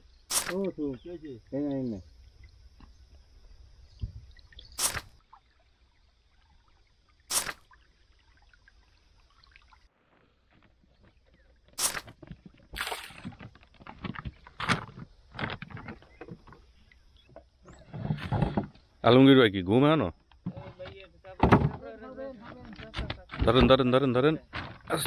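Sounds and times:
water splashing around boat: 4.2s - 18.8s.

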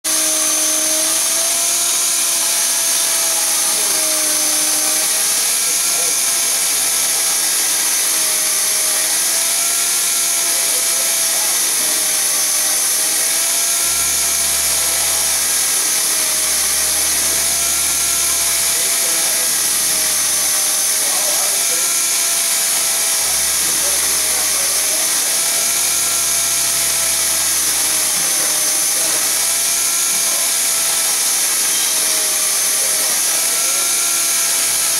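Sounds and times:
cutting machine motor whine: 0.0s - 34.9s
low hum: 13.7s - 20.6s, 22.7s - 28.3s.

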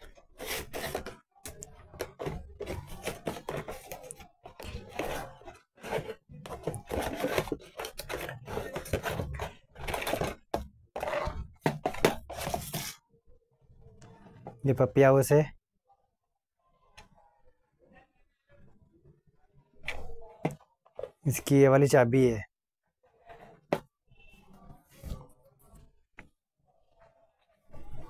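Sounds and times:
cardboard box rustling and knocking: 2.0s - 12.9s.

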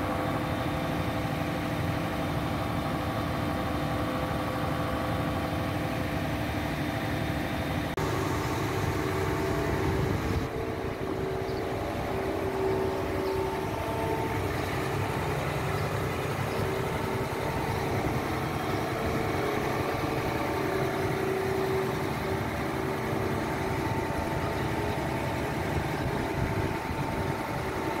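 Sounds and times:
diesel engine idling: 0.0s - 28.0s
steady tones: 8.0s - 28.0s.

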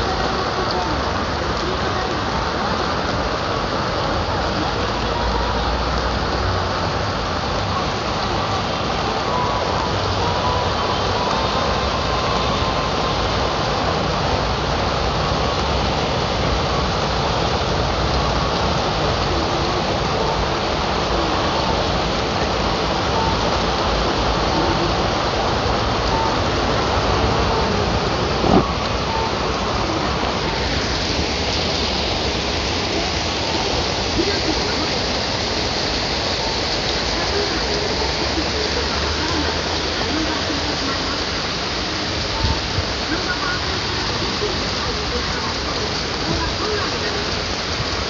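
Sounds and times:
steady rain falling: 0.0s - 48.0s.

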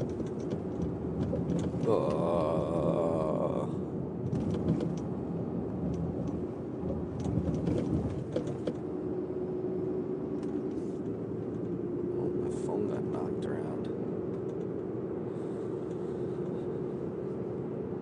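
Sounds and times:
sharp clicks and knocks: 0.0s - 2.2s, 4.2s - 5.1s, 5.9s - 8.8s
car road noise rumble: 0.0s - 18.0s.

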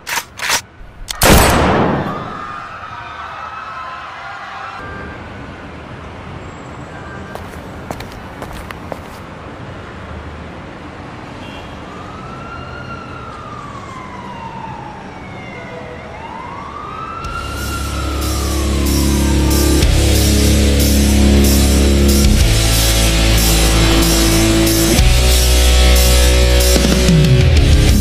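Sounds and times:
siren wailing: 12.0s - 27.2s
rock music with drums: 17.3s - 28.0s.

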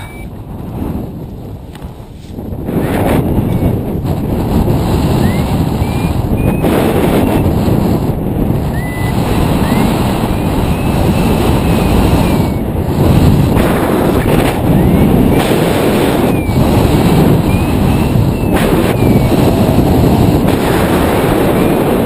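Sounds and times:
faint short chirps: 0.0s - 0.3s
wind roaring over microphone: 0.0s - 22.0s.

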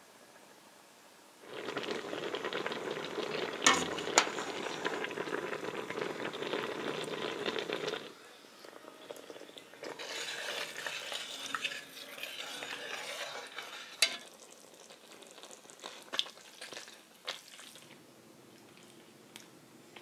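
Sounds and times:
sauce sizzling in a pot: 1.4s - 17.9s
metal spoon stirring thick sauce: 9.7s - 14.4s.

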